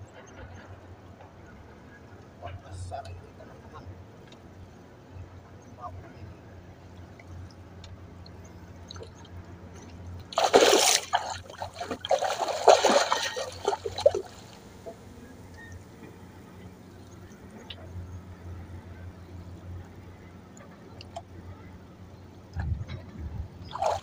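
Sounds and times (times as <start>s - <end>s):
water splashing and sloshing: 6.9s - 18.0s, 23.6s - 24.0s.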